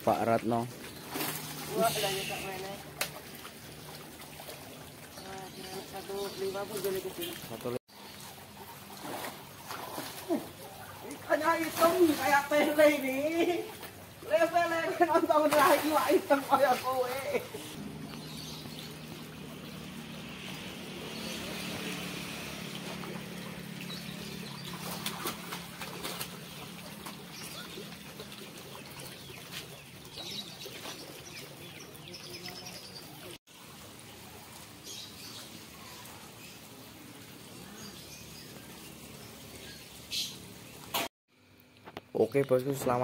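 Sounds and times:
water splashing: 0.0s - 41.1s
fish flapping: 24.6s - 28.7s.

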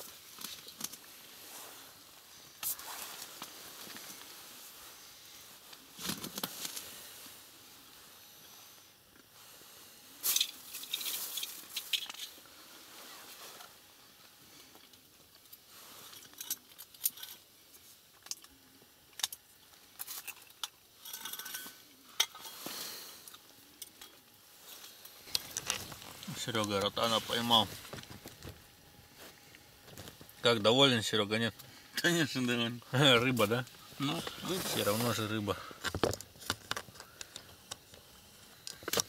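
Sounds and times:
fishing gear clicks and clinks: 25.2s - 27.0s.

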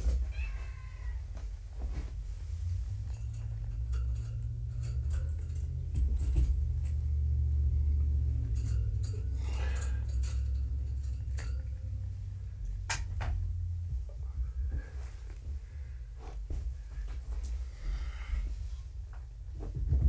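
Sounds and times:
low rumble: 1.2s - 20.0s
light metallic jingle: 2.8s - 12.8s.

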